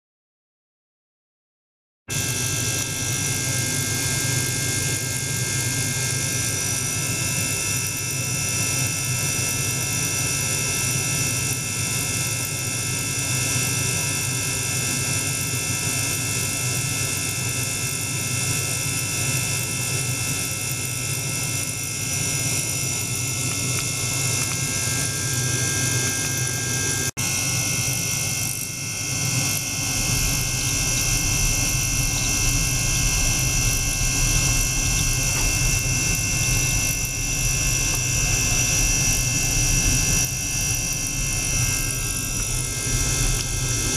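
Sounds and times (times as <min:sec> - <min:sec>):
ultrasonic bath humming: 0:02.1 - 0:43.9
high whining tones: 0:21.6 - 0:27.7, 0:28.4 - 0:43.9.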